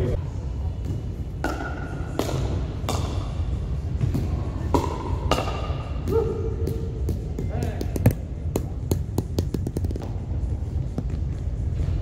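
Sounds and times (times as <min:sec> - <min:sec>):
paddles hitting plastic ball: 0:04.7 - 0:10.2.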